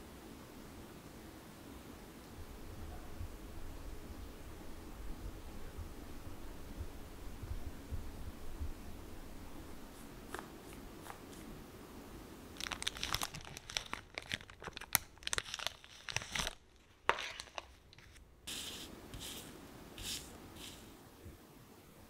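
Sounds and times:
plastic packets crinkling: 0:12.6 - 0:18.2
paper stickers rustling: 0:12.6 - 0:20.9.

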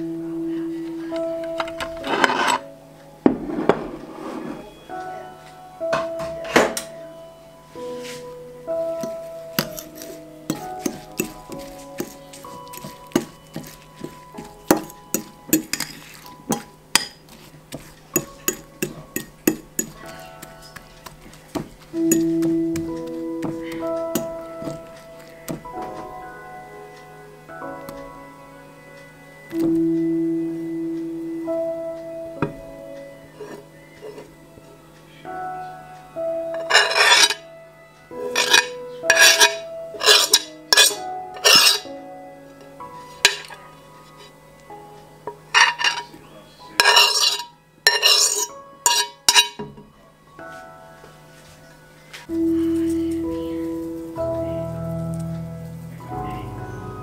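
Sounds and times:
faint background music: 0:00.0 - 0:57.0
utensils clinking against dishes: 0:01.5 - 0:02.7, 0:09.0 - 0:26.0, 0:36.6 - 0:37.4, 0:38.2 - 0:41.9, 0:43.2 - 0:44.4, 0:45.3 - 0:49.9.

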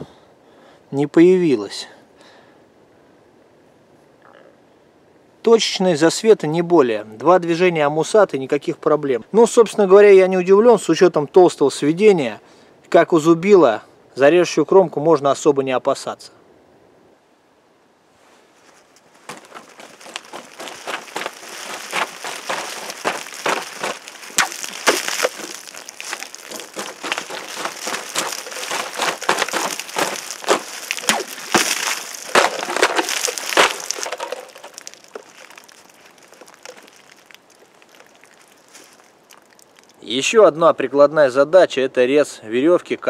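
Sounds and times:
water splashing: 0:19.4 - 0:40.0
knife slashing plastic bottles: 0:29.0 - 0:34.8.

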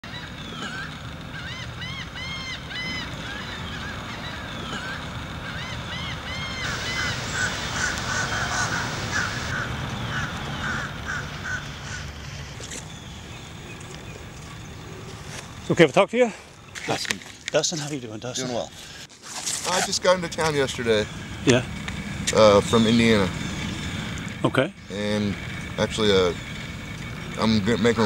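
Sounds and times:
birds calling: 0:00.0 - 0:28.0
low rumble: 0:06.5 - 0:12.6.

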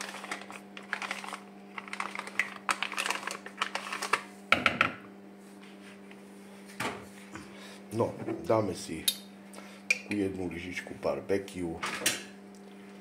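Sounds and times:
plastic sachet crinkling: 0:00.0 - 0:04.3.

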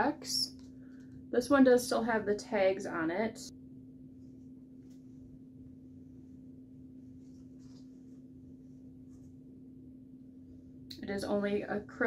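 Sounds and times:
low hum: 0:00.0 - 0:12.0
garment rustling: 0:07.1 - 0:09.4.

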